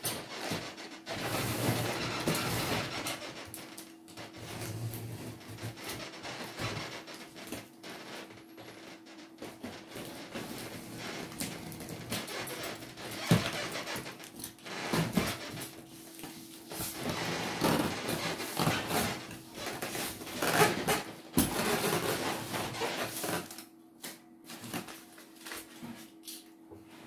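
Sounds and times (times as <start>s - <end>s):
cardboard box rustling and scraping: 1.1s - 3.2s.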